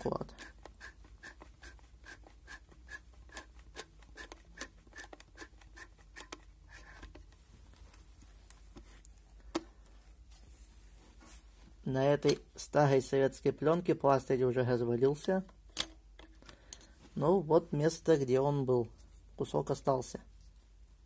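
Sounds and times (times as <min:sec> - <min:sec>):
camera ratchet clicking: 0:00.4 - 0:07.2.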